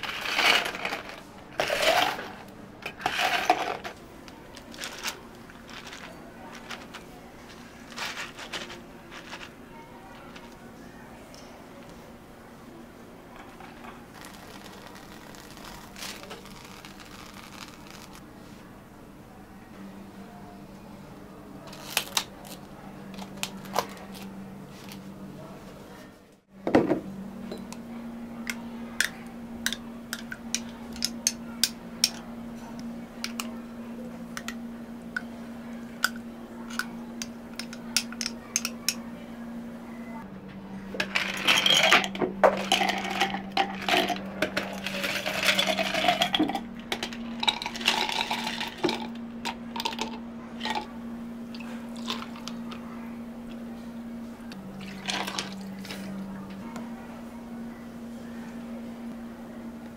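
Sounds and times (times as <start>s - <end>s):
steady low hum: 0.0s - 59.9s
cups and utensils clinking: 41.0s - 49.1s.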